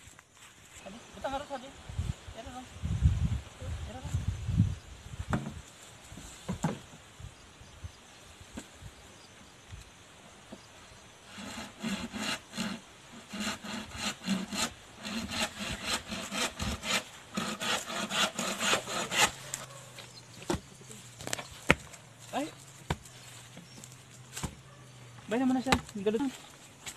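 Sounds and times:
saw cutting bamboo: 11.3s - 19.8s.

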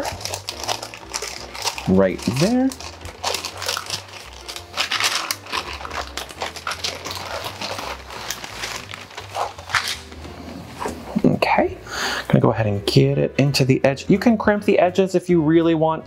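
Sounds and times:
parchment paper crinkling: 0.0s - 11.2s.

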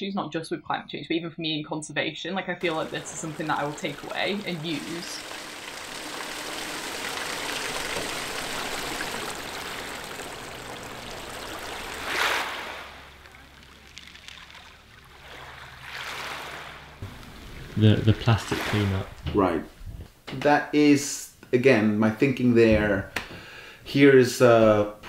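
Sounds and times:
water running and splashing: 2.6s - 19.3s.

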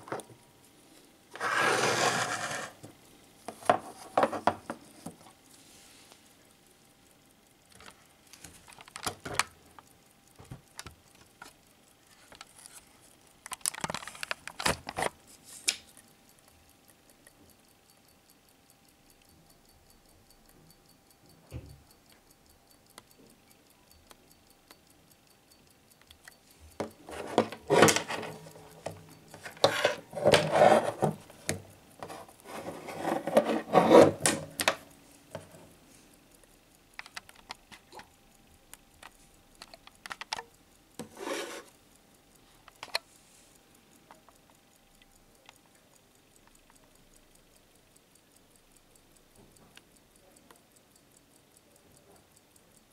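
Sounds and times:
watch strap rubbing on table: 1.4s - 2.8s
watch ticking faintly: 4.8s - 52.9s
light clicks: 36.4s - 52.9s.

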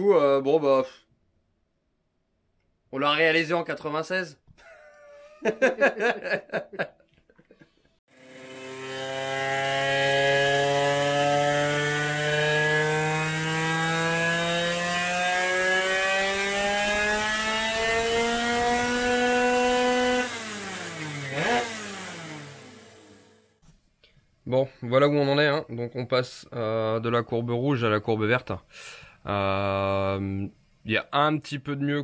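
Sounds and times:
racing engine revving: 8.1s - 23.4s.

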